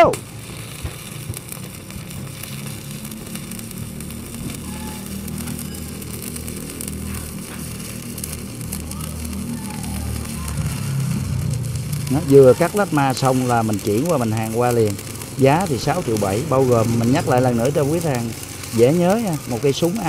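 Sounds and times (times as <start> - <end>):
welding arc hissing crackle: 0.0 - 20.0.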